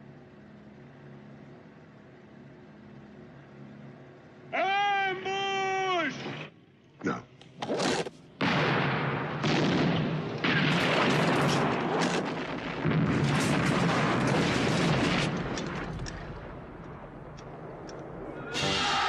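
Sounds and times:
heavy explosions with rumble: 8.4 - 18.3.

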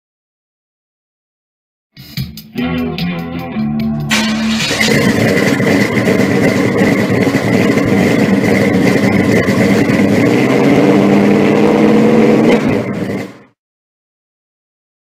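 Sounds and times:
engine running loudly: 4.1 - 13.6.

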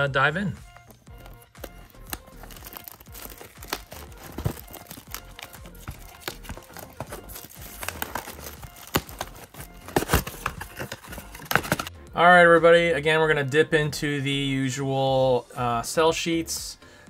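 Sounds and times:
packaging crinkling and tearing: 1.1 - 11.9.

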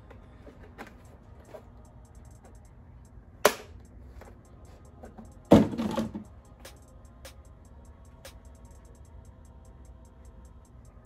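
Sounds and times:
plastic bottles clattering: 5.5 - 6.2.

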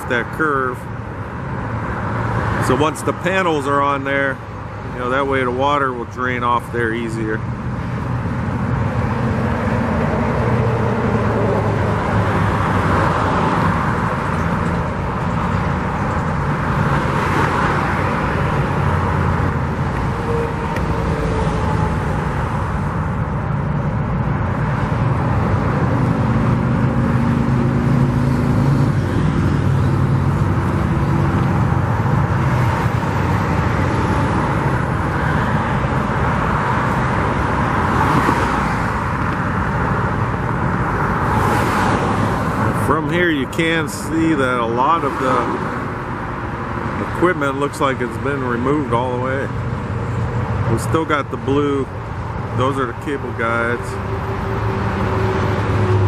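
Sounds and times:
vehicles passing: 0.0 - 56.0.

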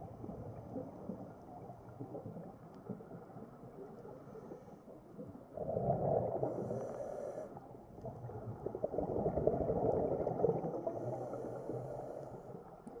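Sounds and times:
diver breathing through regulator: 6.4 - 7.6, 10.9 - 12.6.

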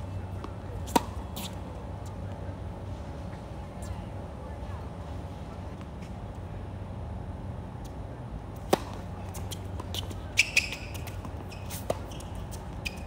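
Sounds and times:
racket striking tennis ball: 0.4 - 1.6, 8.6 - 12.1.

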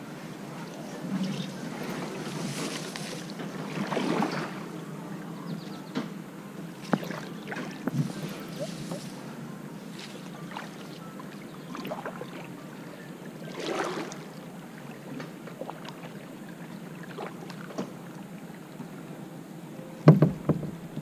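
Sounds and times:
kayak paddle splashing: 1.6 - 4.8, 6.7 - 18.8
sharp knocks: 20.1 - 21.0.

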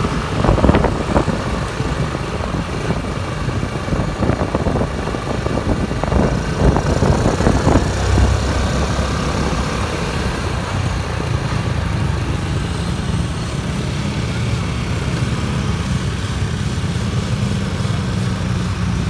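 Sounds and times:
road traffic hum: 0.0 - 19.0.

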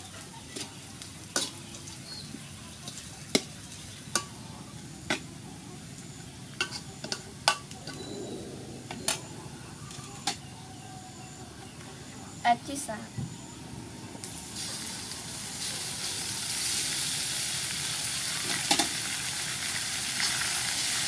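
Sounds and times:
food sizzling in hot oil: 0.0 - 8.0, 14.2 - 21.0.

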